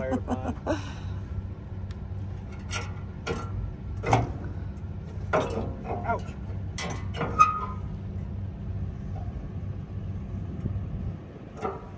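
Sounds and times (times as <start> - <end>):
engine idling: 0.0 - 11.9
metallic clicks and clanks: 2.4 - 7.9.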